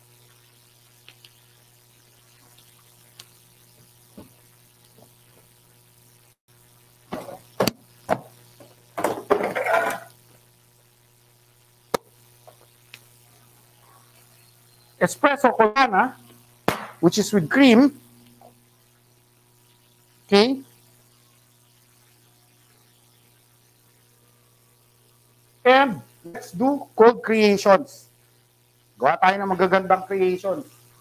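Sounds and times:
electrical hum: 0.0s - 31.0s
cups and utensils clinking: 9.4s - 10.1s.

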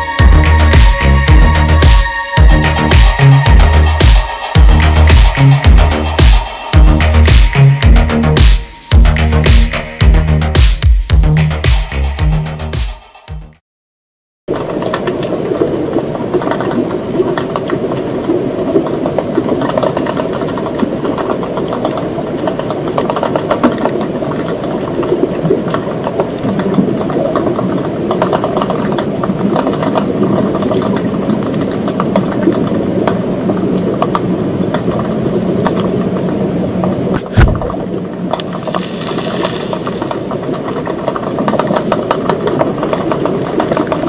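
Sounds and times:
underwater crackling rattle: 14.5s - 44.0s.

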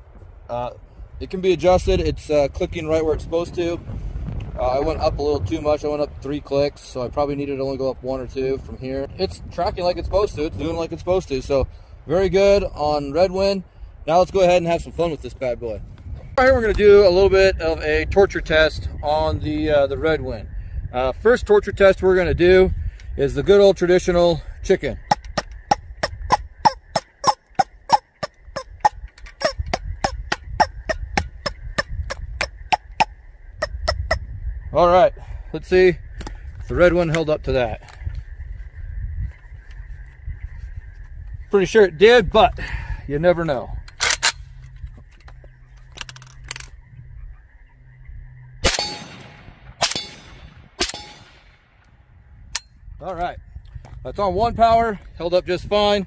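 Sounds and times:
suppressed rifle shots: 48.6s - 51.8s.

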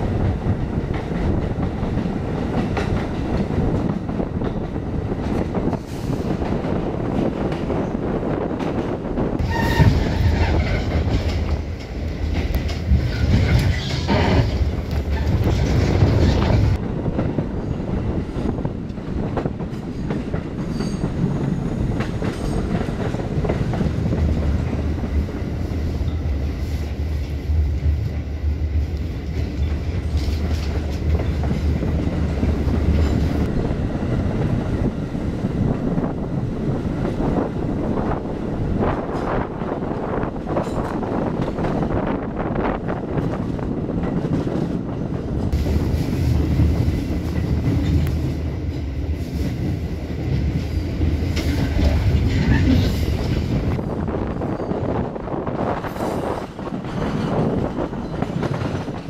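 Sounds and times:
subway train rumble: 0.0s - 59.0s
wheels clacking over rail joints: 8.5s - 17.4s.

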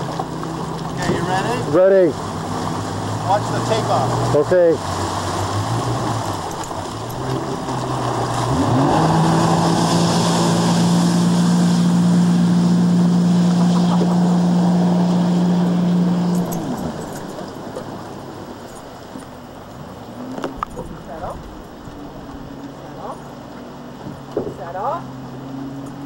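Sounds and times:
water spray rushing: 0.0s - 19.5s
jet ski engine revving: 0.0s - 26.0s.

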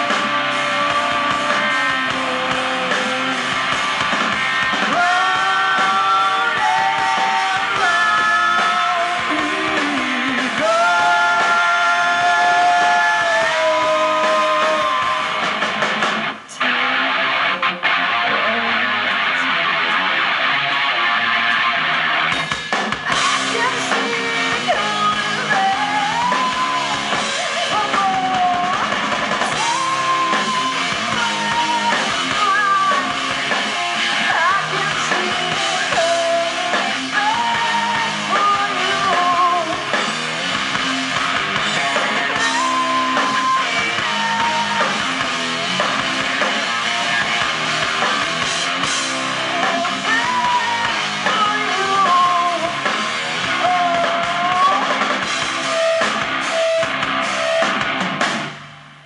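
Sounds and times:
person singing: 0.0s - 3.8s, 4.8s - 15.5s, 16.5s - 21.7s, 23.1s - 40.1s, 41.7s - 45.3s, 49.3s - 57.7s
distorted electric guitars: 0.0s - 59.0s
drum kit: 0.0s - 59.0s.

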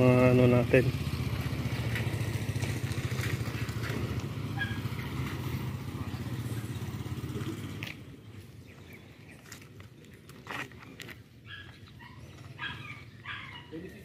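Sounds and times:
motorcycle engine idling: 0.0s - 8.9s.

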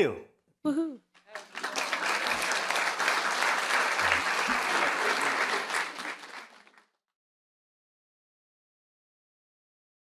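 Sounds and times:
audience applauding: 1.3s - 7.0s.

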